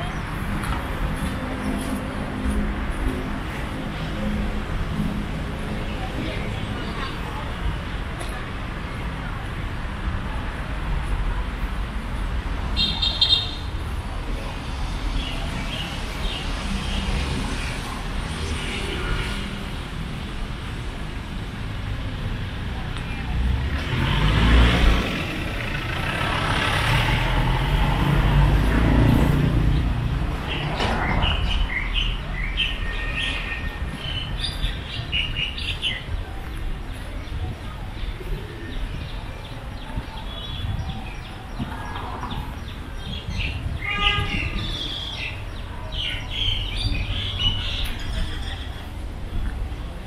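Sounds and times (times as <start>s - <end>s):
low traffic hum: 0.0s - 50.0s
vehicle passing: 23.3s - 32.4s.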